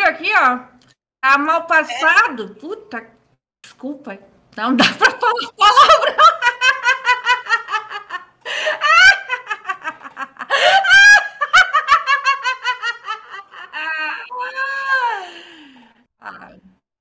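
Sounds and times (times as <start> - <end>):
woman cackling laugh: 4.8 - 14.3.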